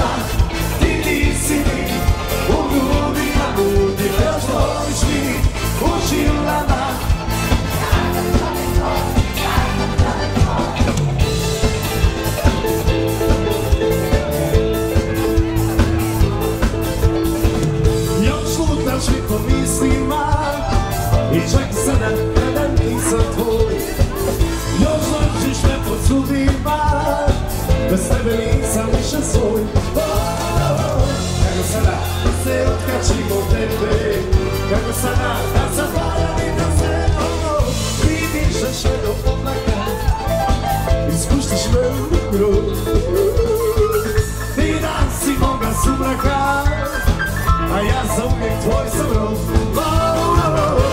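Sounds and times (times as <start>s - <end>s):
band playing pop-rock song: 0.0s - 50.9s
steady drum beat: 0.0s - 50.9s
person singing: 16.5s - 50.9s.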